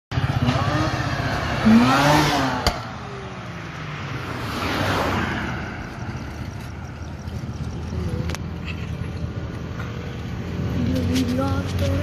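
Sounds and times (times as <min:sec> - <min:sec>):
car accelerating past: 0:00.2 - 0:06.4.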